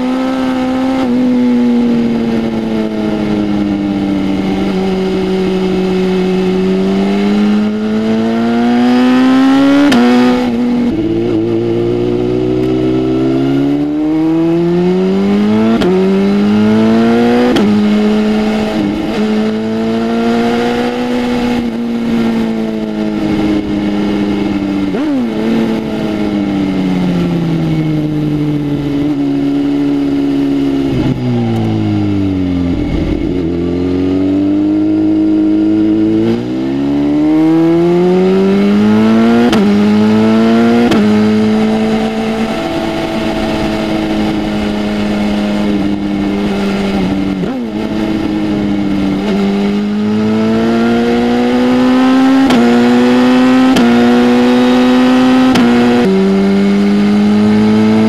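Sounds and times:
motorcycle accelerating through gears: 0:00.0 - 0:58.0.

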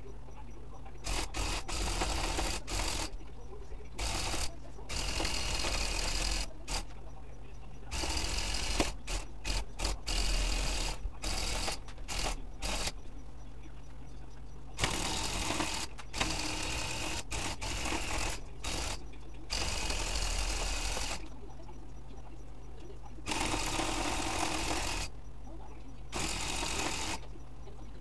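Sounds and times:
electric tufting gun running: 0:01.0 - 0:03.2, 0:04.0 - 0:07.0, 0:07.9 - 0:13.0, 0:14.8 - 0:21.2, 0:23.3 - 0:25.1, 0:26.1 - 0:27.2.

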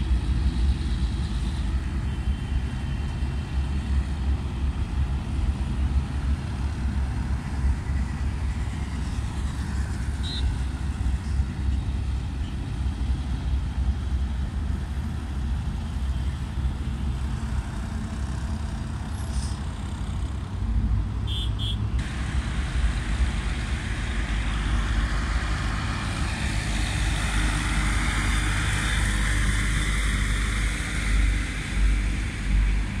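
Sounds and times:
engine and road rumble: 0:00.0 - 0:33.0
wind and tyre hiss: 0:00.0 - 0:33.0.

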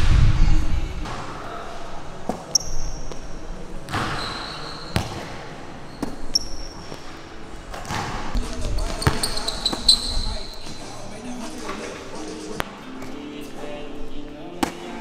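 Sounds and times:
sneaker squeaks: 0:02.3 - 0:07.2, 0:07.8 - 0:12.0
basketball bouncing on hard floor: 0:03.9 - 0:05.4, 0:07.7 - 0:10.2
ball striking rim: 0:03.9 - 0:07.0, 0:07.7 - 0:10.2.

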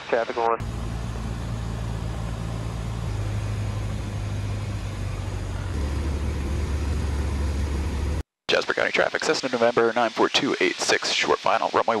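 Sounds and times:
airplane engine droning: 0:00.6 - 0:08.2.

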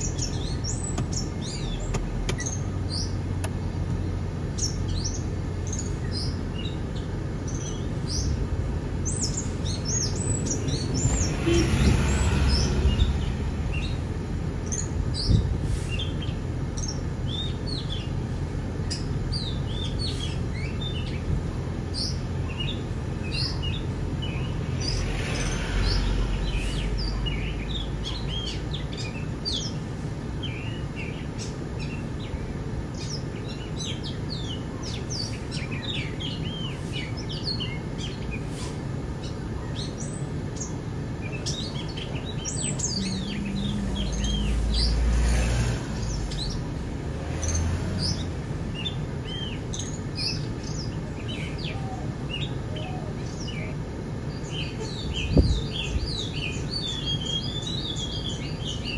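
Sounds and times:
steady low rumble: 0:00.0 - 0:17.5
birds chirping and calling: 0:00.0 - 0:58.9.

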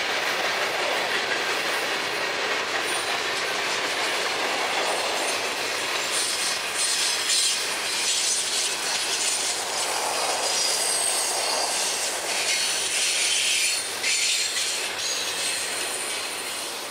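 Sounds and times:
steel wheels clattering over rail: 0:00.0 - 0:16.9
high wheel squealing: 0:04.8 - 0:16.8.

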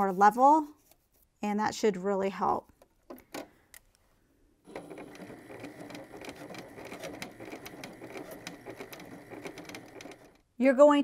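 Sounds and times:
sewing machine stitching: 0:04.7 - 0:10.5.

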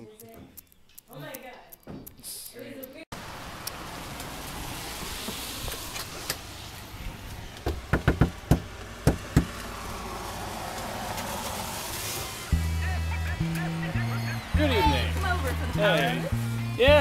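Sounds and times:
sharp knocks: 0:07.6 - 0:09.6.

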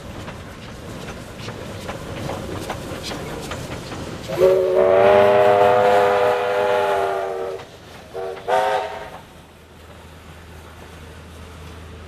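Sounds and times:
steam locomotive whistle: 0:04.3 - 0:09.2.

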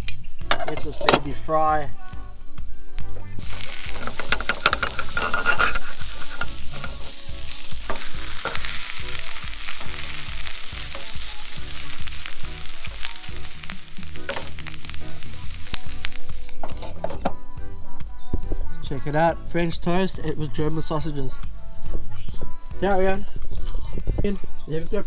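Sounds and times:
bread sizzling in a frying pan: 0:03.4 - 0:17.0.

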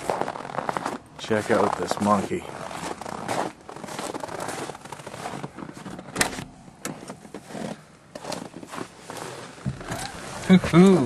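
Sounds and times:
rustling: 0:01.7 - 0:11.0.

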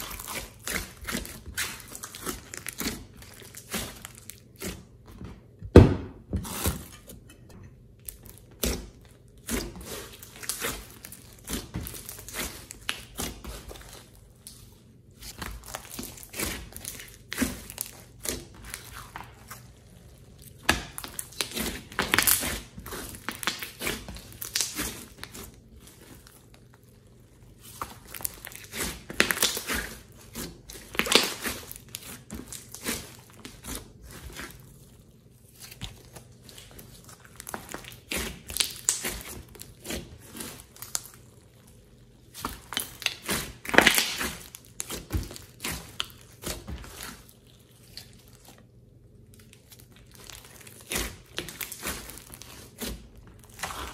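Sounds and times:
slime crackling and popping: 0:00.0 - 0:04.8, 0:08.0 - 0:53.9.

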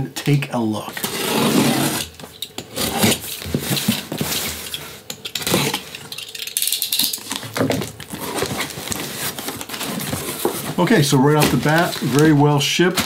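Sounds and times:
cardboard flaps scraping: 0:01.0 - 0:05.7, 0:08.1 - 0:13.0
knife slitting packing tape: 0:02.7 - 0:07.4.

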